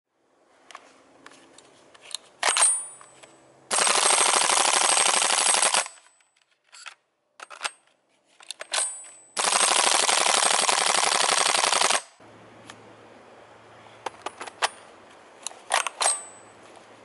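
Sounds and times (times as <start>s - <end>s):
airsoft rifle firing bursts: 3.7s - 6.0s, 9.4s - 12.2s
sharp rifle clicks: 15.5s - 16.3s.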